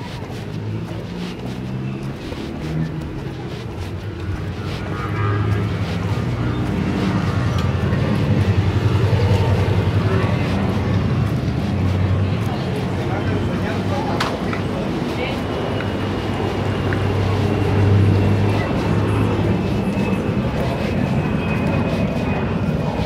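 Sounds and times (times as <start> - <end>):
car engine humming: 0.0 - 23.0.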